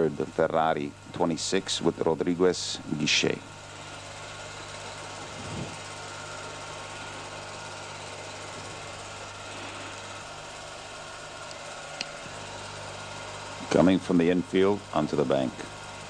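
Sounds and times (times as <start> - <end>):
steady low hum: 0.0 - 16.0
even hiss: 5.2 - 6.1.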